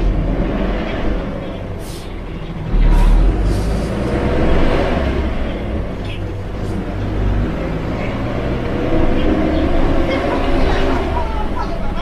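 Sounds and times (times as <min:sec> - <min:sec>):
bus engine rumbling: 0:00.0 - 0:12.0.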